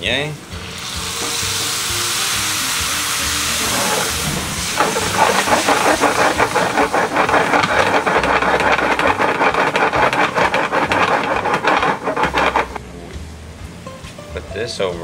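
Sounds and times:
pan sizzling and crackling: 0.6 - 12.8.

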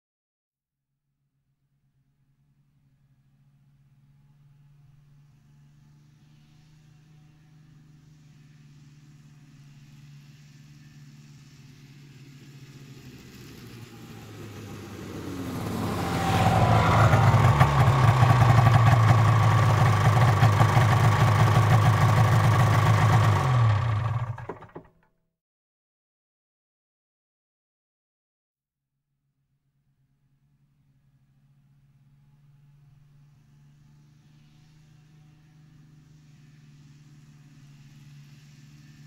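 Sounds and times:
snowmobile engine: 5.5 - 24.8.

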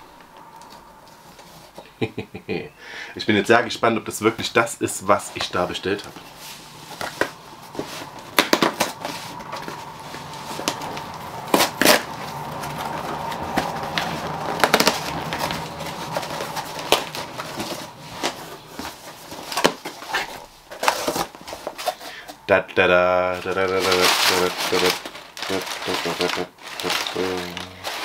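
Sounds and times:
tape and cardboard scraping: 5.1 - 22.3
cardboard box being cut open: 11.5 - 18.4.

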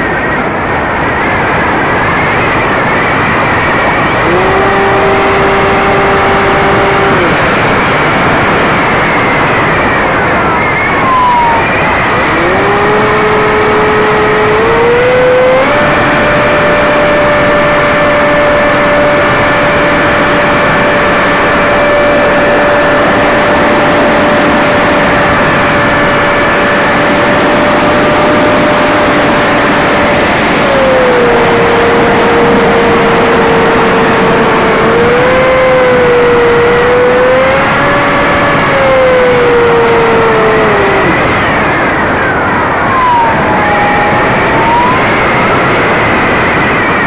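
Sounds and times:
heavy wind rush: 0.0 - 47.0
model aircraft motor whine: 4.1 - 9.0, 11.1 - 41.4.

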